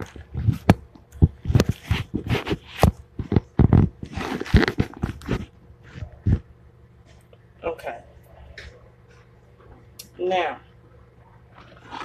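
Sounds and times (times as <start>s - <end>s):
kitchen items knocking and rustling: 0.0s - 6.4s.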